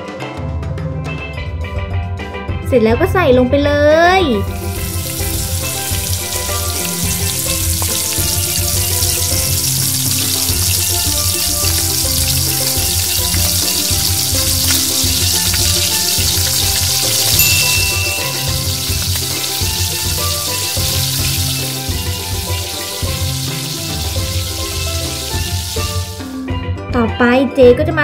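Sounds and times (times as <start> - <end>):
background music: 0.0 - 28.0
food sizzling in hot oil: 4.3 - 26.4.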